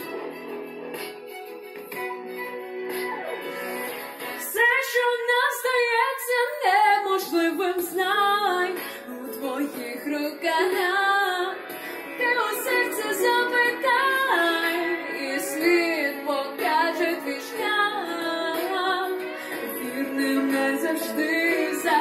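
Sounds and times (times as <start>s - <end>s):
instrumental backing music: 0.0s - 22.0s
woman singing pop ballad: 4.2s - 22.0s.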